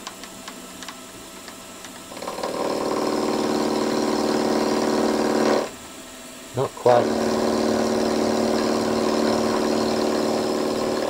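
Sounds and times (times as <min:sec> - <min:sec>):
milling machine spindle hum: 0:00.1 - 0:11.0
cutter whine cutting metal: 0:02.1 - 0:05.8, 0:06.8 - 0:11.0.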